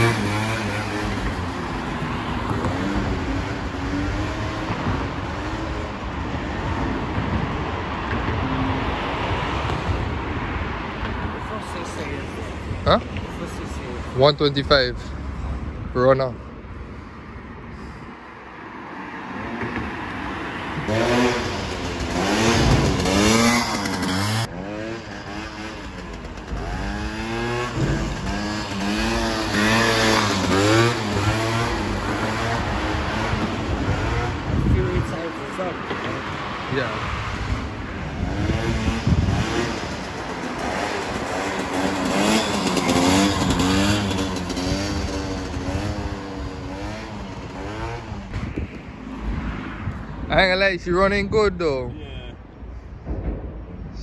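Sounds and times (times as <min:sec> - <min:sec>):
scooter engine revving: 0:00.0 - 0:06.9, 0:20.8 - 0:34.7, 0:37.3 - 0:48.6
rushing traffic: 0:00.0 - 0:54.0
faint scooter engine: 0:38.8 - 0:48.3.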